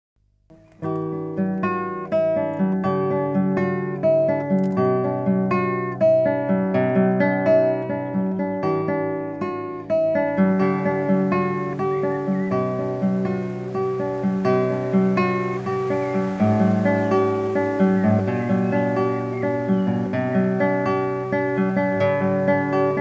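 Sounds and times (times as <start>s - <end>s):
acoustic guitar picking: 0.5s - 23.0s.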